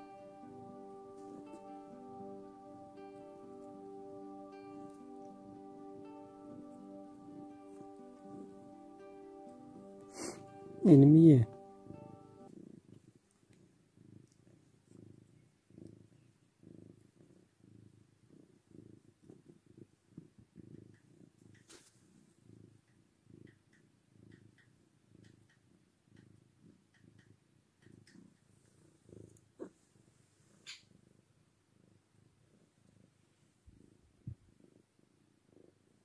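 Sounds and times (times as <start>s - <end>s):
cat purring: 0.0s - 36.0s.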